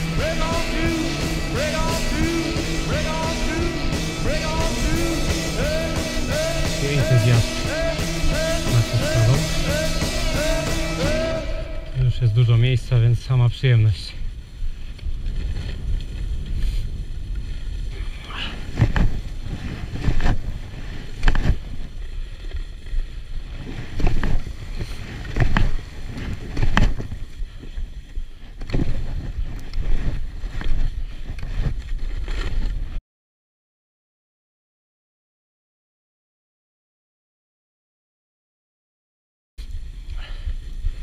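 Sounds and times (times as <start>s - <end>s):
ski strides and pole plants: 0.0s - 33.0s
skis sliding on packed snow: 6.8s - 7.7s, 8.4s - 9.9s, 11.9s - 32.8s
wind noise on microphone: 14.1s - 33.0s.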